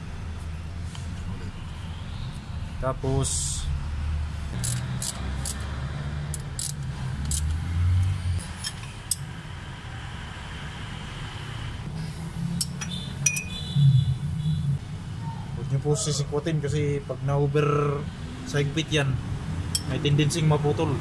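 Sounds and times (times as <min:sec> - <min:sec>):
socket wrench clicking: 0:04.6 - 0:05.7, 0:06.3 - 0:07.6.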